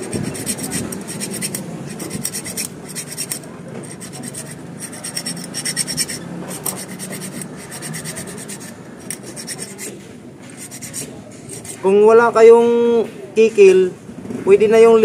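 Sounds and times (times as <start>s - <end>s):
hand file rasping on steel: 0.0s - 11.9s.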